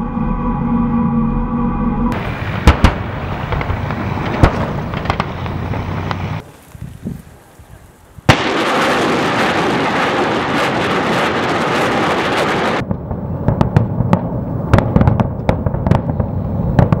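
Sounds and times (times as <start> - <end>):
explosion rumble: 2.1 - 6.4, 8.3 - 17.0
rocket motors roaring: 2.1 - 6.4
sharp explosions: 2.1 - 6.4, 8.3 - 17.0.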